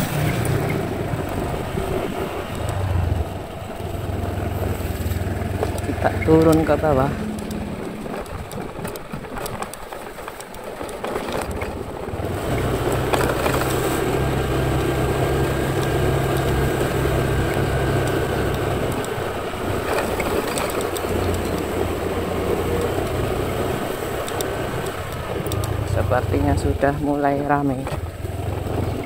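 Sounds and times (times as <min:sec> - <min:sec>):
motor scooter engine running: 0:00.0 - 0:29.0
road and wind noise: 0:00.0 - 0:29.0.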